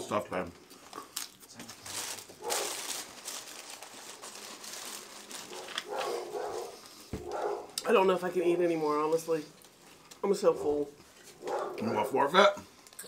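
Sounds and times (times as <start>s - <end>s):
paper wrappers crinkling: 0.0s - 8.2s, 12.7s - 13.0s.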